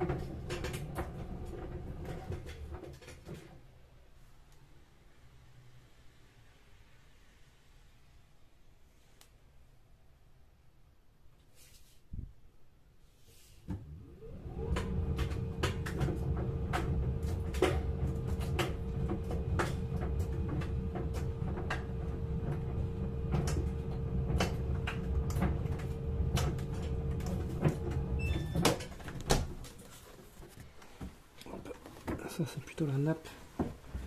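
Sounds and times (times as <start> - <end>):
laundry machine motor humming: 13.8 - 29.8
sharp clicks and knocks: 14.5 - 32.3.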